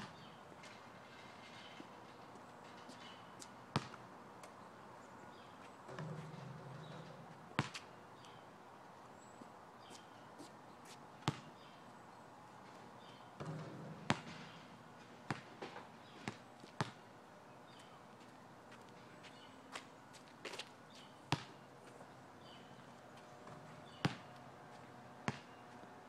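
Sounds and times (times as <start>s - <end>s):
basketball thuds: 3.7s - 4.0s, 5.9s - 7.8s, 11.3s - 11.5s, 13.4s - 14.6s, 23.4s - 24.3s, 25.3s - 25.5s.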